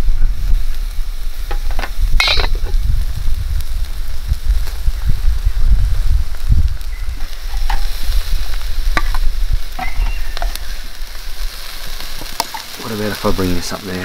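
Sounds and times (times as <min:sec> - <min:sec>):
low rumble: 0:00.0 - 0:12.3
food sizzling on a barbecue: 0:00.0 - 0:14.0
metal utensils scraping a pan: 0:01.5 - 0:02.7, 0:07.2 - 0:08.0, 0:09.0 - 0:10.6.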